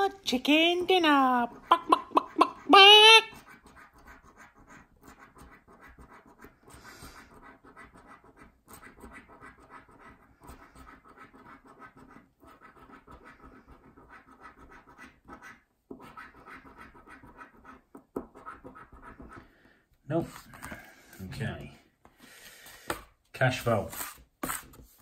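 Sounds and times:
coin scratching a scratchcard: 3.4s - 19.4s.

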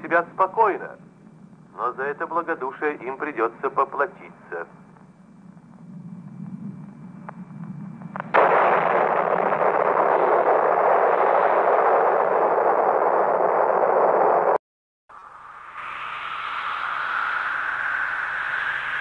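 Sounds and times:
faint crackles: 3.6s - 14.6s
loud rushing blast wave: 8.2s - 14.6s.

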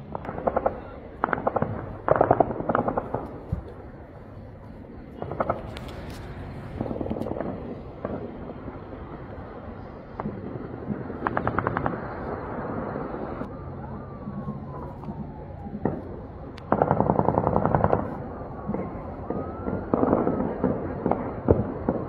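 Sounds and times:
automatic gunfire: 0.1s - 3.4s, 10.2s - 12.2s, 16.7s - 18.1s.

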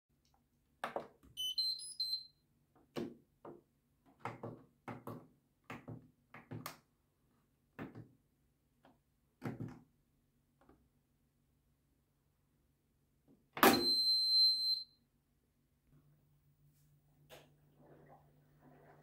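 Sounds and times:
washing machine beep tune: 1.4s - 2.4s, 13.6s - 15.0s.

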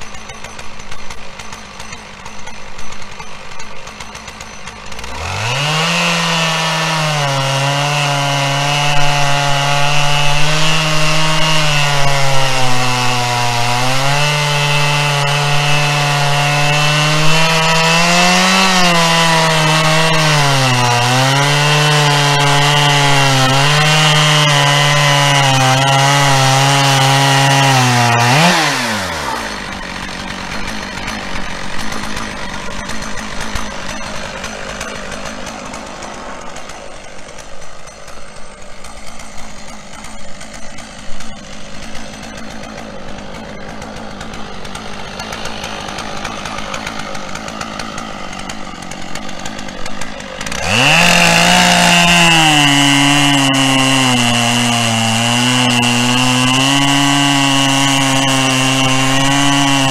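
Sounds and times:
chainsaw cutting log: 0.0s - 59.9s
chainsaw idling: 0.0s - 59.9s.

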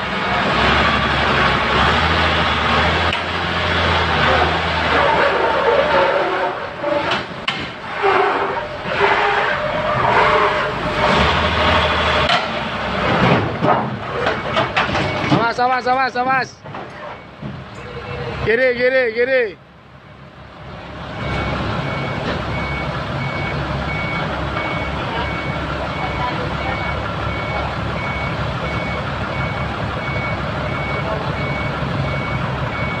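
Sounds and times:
forklift engine running under load: 0.0s - 15.3s, 19.7s - 33.0s
back-up alarm beeping: 21.2s - 33.0s.

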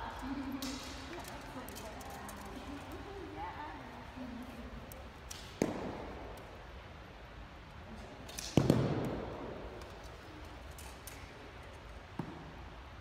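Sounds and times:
arrow hitting with sharp thwack: 5.3s - 6.2s, 8.3s - 9.5s.

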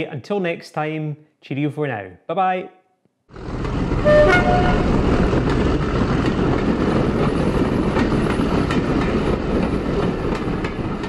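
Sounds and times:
train rumbling along track: 3.3s - 11.0s
wheels clacking over rail joints: 3.4s - 11.0s.

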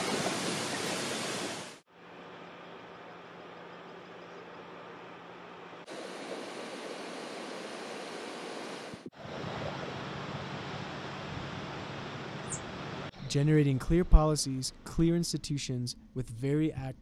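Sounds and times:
water rushing from dam outflow: 5.9s - 12.3s.

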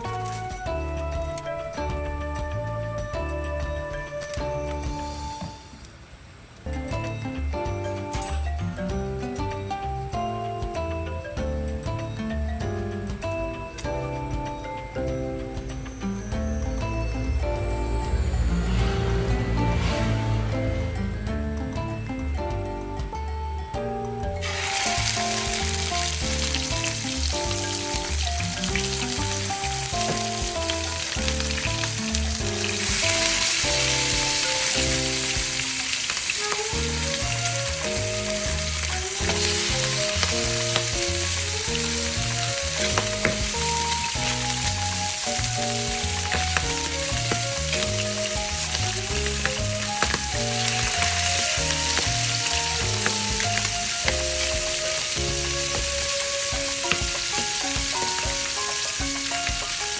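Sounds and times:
background music: 0.0s - 6.0s, 6.6s - 59.9s
fish sizzling in oil: 24.4s - 59.9s.

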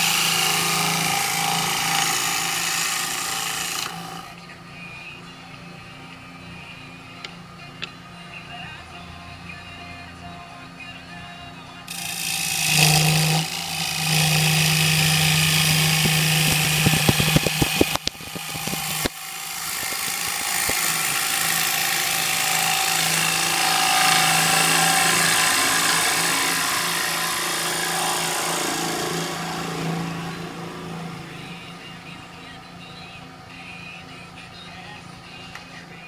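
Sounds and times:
lathe motor hum: 0.0s - 4.4s, 11.9s - 32.1s
turning tool cutting wood: 0.0s - 4.4s, 11.9s - 31.8s.

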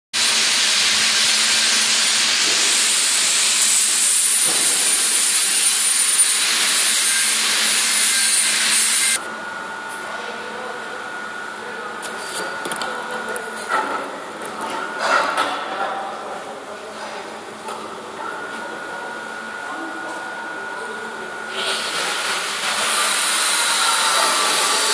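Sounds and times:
loud steady hiss: 0.2s - 9.2s
steady hum: 0.3s - 15.0s.

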